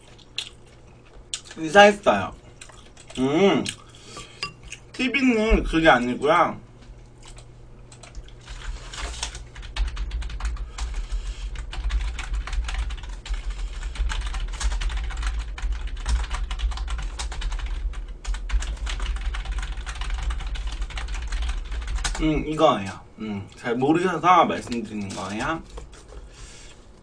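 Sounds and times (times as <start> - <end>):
typing on computer keyboard: 9.1 - 22.3.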